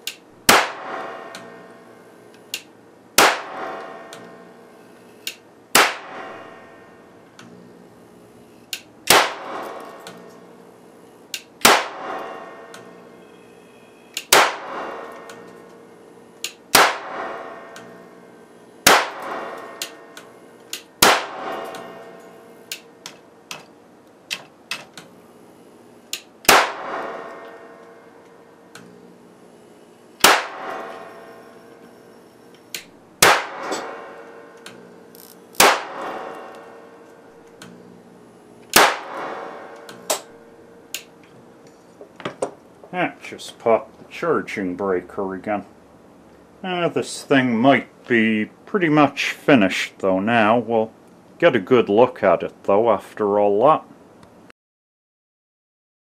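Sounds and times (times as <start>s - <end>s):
small electric snaps: 0.0s - 6.2s, 7.3s - 7.6s, 8.4s - 10.5s, 11.2s - 12.0s, 14.1s - 15.8s, 16.4s - 17.1s, 17.7s - 18.0s, 18.8s - 25.2s, 25.8s - 29.0s, 30.2s - 37.8s, 38.6s - 41.3s
electric arc cracks: 0.0s - 7.6s, 8.4s - 23.2s, 24.3s - 38.0s, 38.6s - 41.3s.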